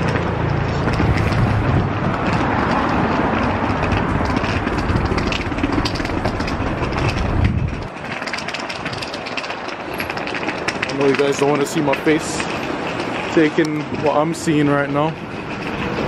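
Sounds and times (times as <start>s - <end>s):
light street noise: 0.0s - 16.0s
low rumble of vehicles: 0.0s - 16.0s.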